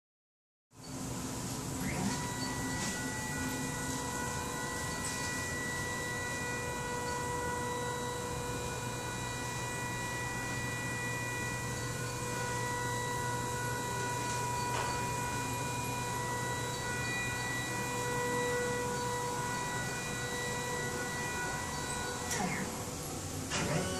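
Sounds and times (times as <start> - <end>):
electronic whine and hum: 0.8 - 23.9.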